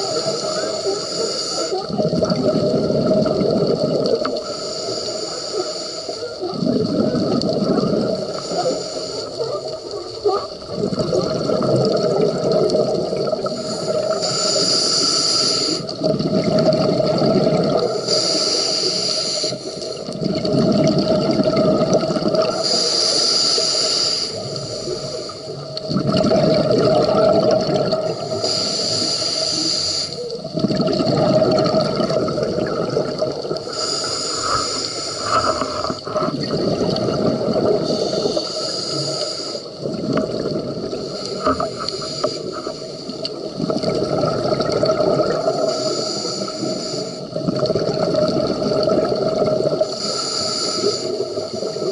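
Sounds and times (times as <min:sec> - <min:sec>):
regulator hiss on inhale: 0:00.0 - 0:01.9, 0:04.2 - 0:06.4, 0:08.2 - 0:09.9, 0:13.4 - 0:16.0, 0:17.8 - 0:20.1, 0:22.5 - 0:25.9, 0:28.1 - 0:30.4, 0:33.6 - 0:36.3, 0:37.8 - 0:39.8, 0:41.0 - 0:43.5, 0:45.4 - 0:47.4, 0:49.7 - 0:51.9
exhaled bubbles burbling: 0:00.0 - 0:04.7, 0:06.2 - 0:14.7, 0:15.6 - 0:23.7, 0:24.3 - 0:29.2, 0:30.2 - 0:51.9.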